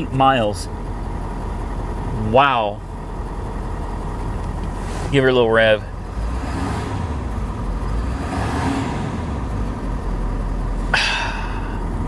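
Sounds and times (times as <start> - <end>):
pickup engine revving: 3.3 - 12.0.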